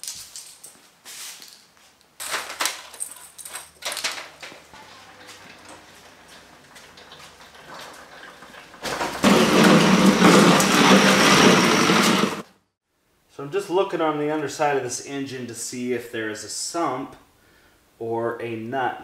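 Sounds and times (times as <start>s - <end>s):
footsteps: 0.0s - 12.5s
push mower rattling on concrete: 3.8s - 12.4s.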